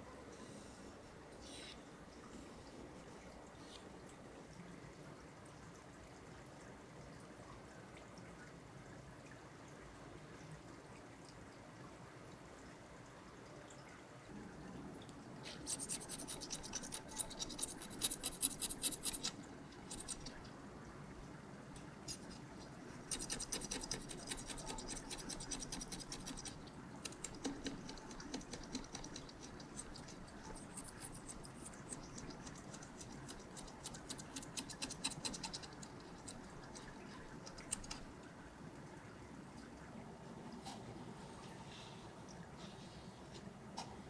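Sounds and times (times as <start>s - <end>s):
scraper scratching glass: 15.6s - 19.3s.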